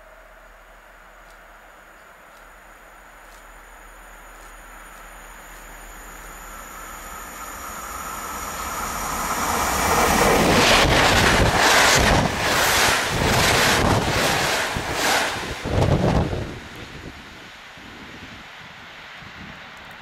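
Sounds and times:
passenger train passing: 0.0 - 20.0
wind buffeting microphone: 8.7 - 19.7.

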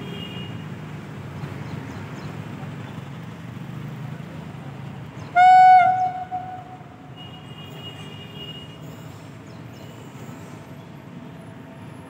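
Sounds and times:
electric locomotive horn blast: 5.4 - 6.9.

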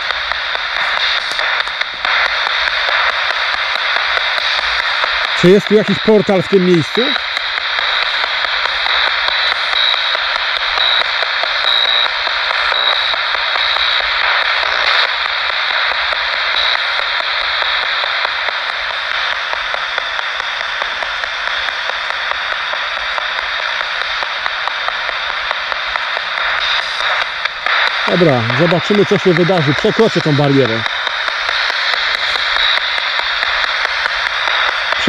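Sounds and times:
static hiss: 0.0 - 35.0.

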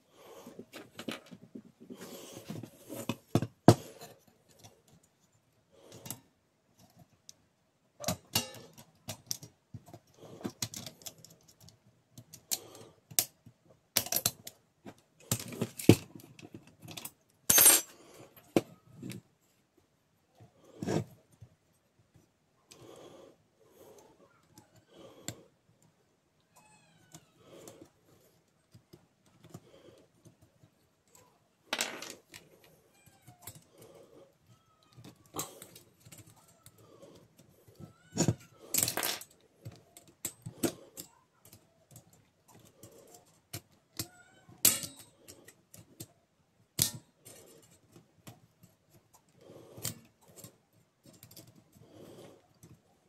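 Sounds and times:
metal and plastic parts clicking: 8.0 - 14.6.

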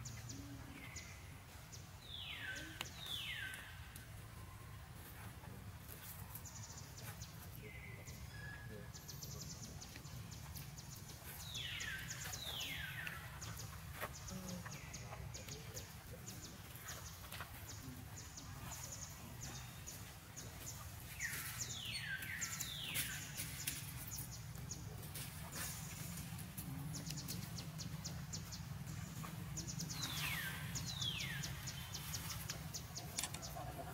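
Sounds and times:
low forest rumble: 6.8 - 33.9.

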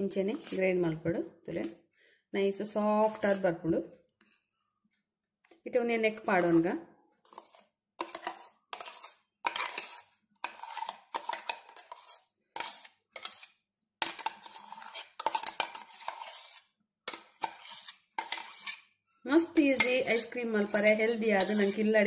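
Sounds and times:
metal spoon scraping steel jar: 0.0 - 0.8, 2.9 - 3.6, 6.2 - 22.0.

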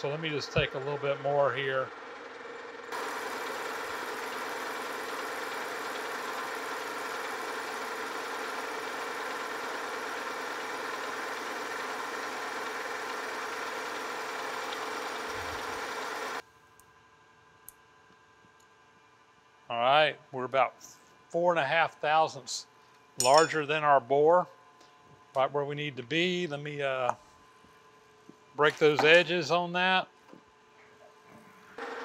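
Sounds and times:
metal lathe whining: 0.0 - 16.4, 31.8 - 32.0.

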